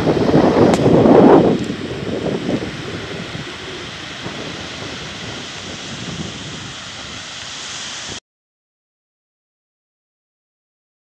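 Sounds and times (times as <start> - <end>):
waves washing onto shingle: 0.0 - 8.2
wind rumbling on microphone: 0.0 - 8.2.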